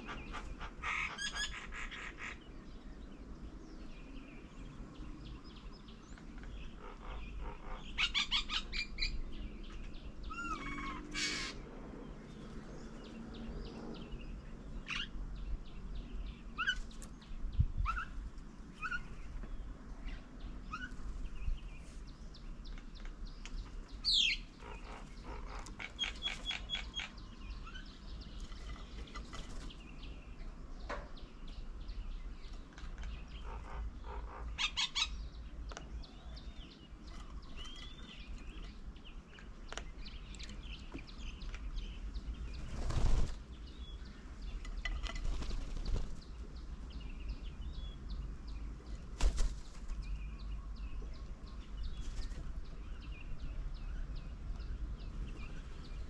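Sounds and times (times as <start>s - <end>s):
birds chirping and trilling: 0.0s - 56.0s.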